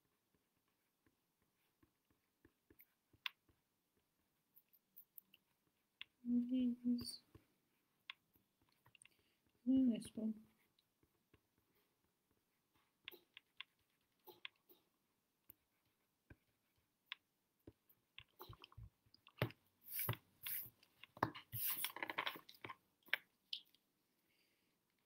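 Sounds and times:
hand brushing across paper: 19.8 - 20.8, 21.4 - 22.0
eraser rubbing on paper: 19.9 - 20.8, 21.5 - 22.0.

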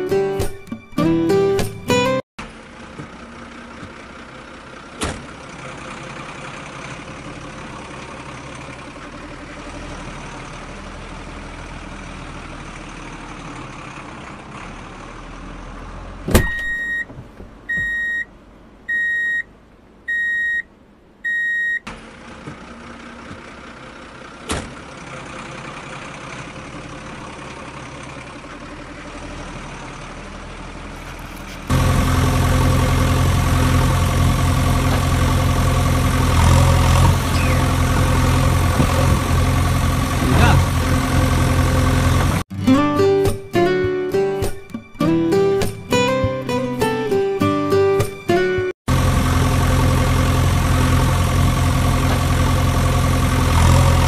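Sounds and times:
heavy engine idling: 2.4 - 17.0, 22.0 - 42.5, 48.9 - 54.0
steady engine noise: 2.4 - 18.8, 21.9 - 42.6, 48.9 - 54.0
reversing beeps: 16.5 - 17.1, 17.7 - 18.3, 18.9 - 19.5, 20.1 - 21.8.

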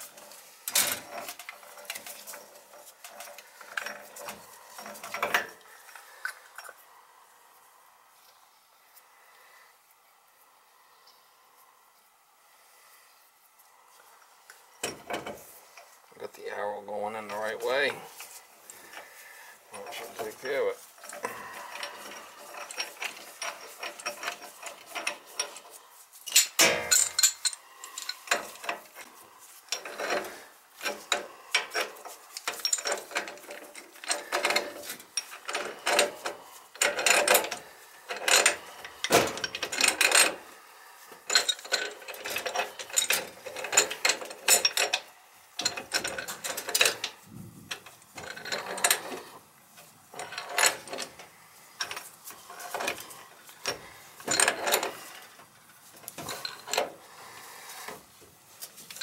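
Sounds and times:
metal threads clicking and scraping: 17.0 - 59.0.

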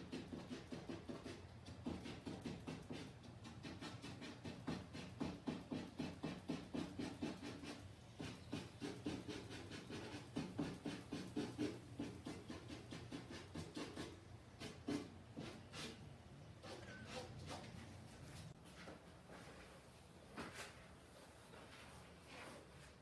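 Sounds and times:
drawing tool strokes on canvas: 0.2 - 16.0.

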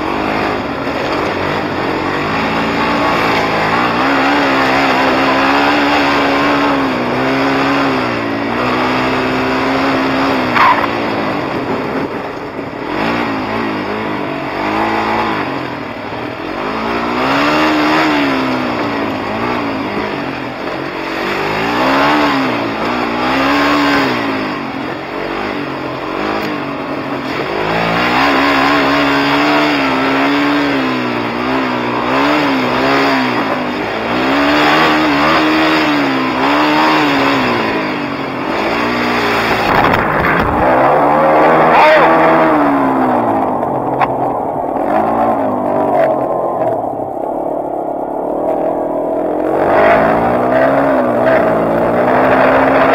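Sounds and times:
quad engine revving: 0.0 - 52.9.

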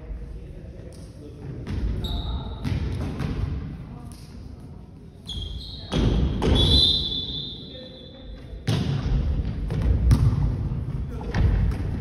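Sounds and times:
high steady whistle tone: 6.5 - 8.2.

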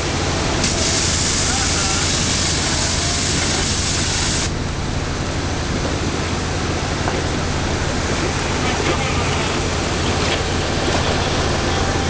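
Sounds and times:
high-pressure water jet hissing: 0.0 - 4.6, 7.6 - 12.0
machinery humming: 0.0 - 12.0.

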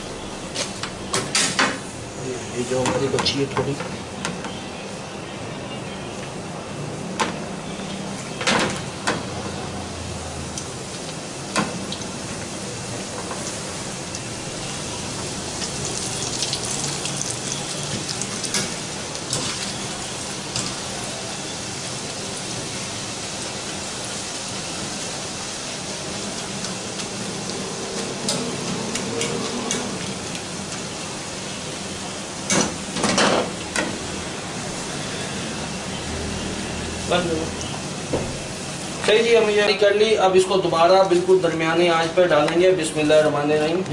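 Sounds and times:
dough deep-frying in oil: 7.4 - 42.4.

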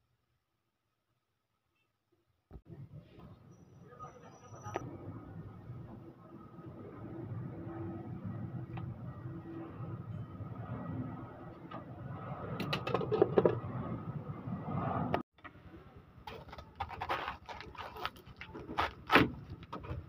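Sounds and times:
knife crunching through cabbage: 16.6 - 19.5.

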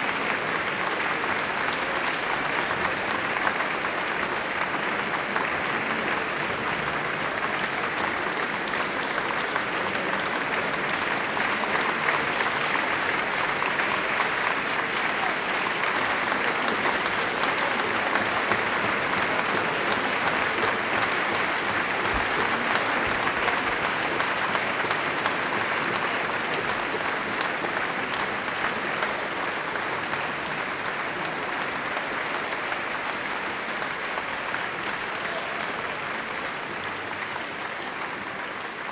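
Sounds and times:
audience applauding: 0.0 - 38.9.

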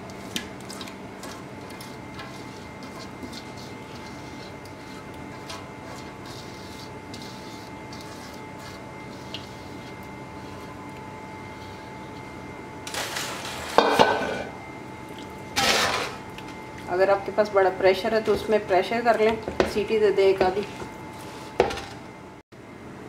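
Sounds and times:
steady background hum: 0.0 - 23.0
paste scraped from bowl: 0.1 - 12.3.

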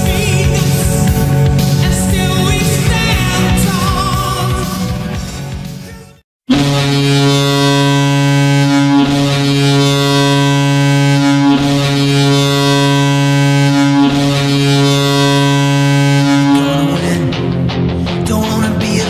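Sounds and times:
deep goal horn blast: 0.0 - 3.9, 6.5 - 17.4.

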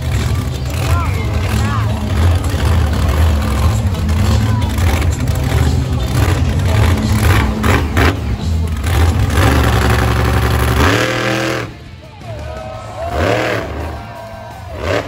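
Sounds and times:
monster truck engine revving: 0.0 - 15.0.

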